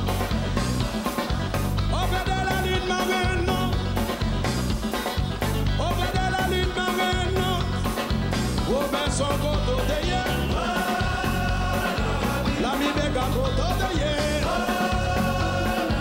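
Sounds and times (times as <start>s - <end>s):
live band music: 0.0s - 16.0s
person singing: 1.9s - 3.8s, 8.7s - 16.0s.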